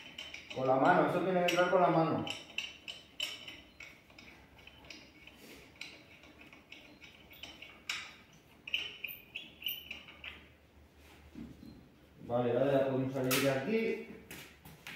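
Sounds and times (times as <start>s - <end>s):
metal bolts clicking against wheel: 0.0s - 10.6s.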